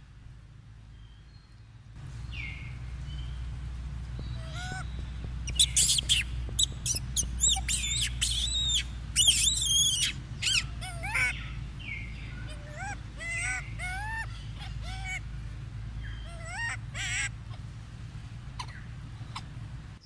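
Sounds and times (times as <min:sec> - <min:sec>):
low rumble: 0:00.0 - 0:20.0
monkeys squealing: 0:04.2 - 0:17.7.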